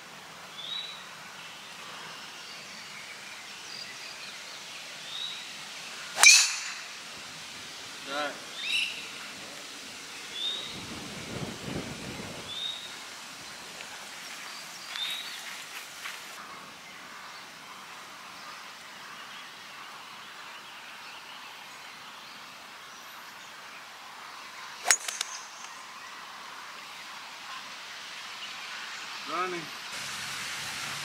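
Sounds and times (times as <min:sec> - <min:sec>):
bird chirps: 0:06.2 - 0:07.0
golf club striking ball: 0:06.2 - 0:07.0, 0:24.8 - 0:25.6.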